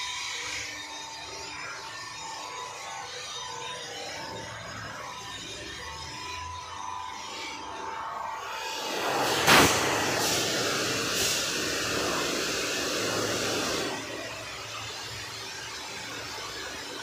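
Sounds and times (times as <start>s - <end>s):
pressure washer jet hissing: 8.6s - 14.4s.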